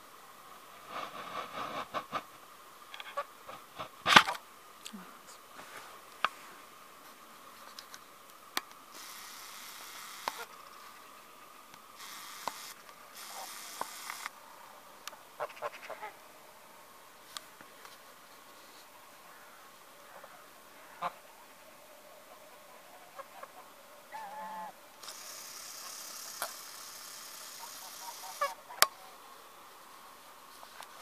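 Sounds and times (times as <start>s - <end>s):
crunching snow: 0.8s - 2.3s
sharp clicks: 8.6s - 10.5s, 12.0s - 14.3s, 25.0s - 27.4s
geese calling: 8.9s - 14.3s, 15.1s - 16.2s, 19.2s - 21.5s, 22.2s - 29.2s.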